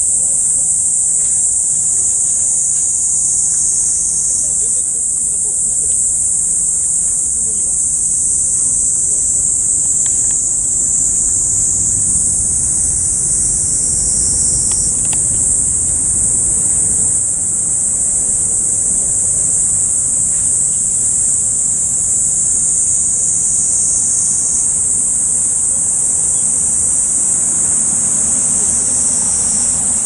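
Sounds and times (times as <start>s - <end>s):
insects shrilling: 0.0s - 30.0s
low background rumble: 0.0s - 30.0s
faint clicks: 9.4s - 17.3s.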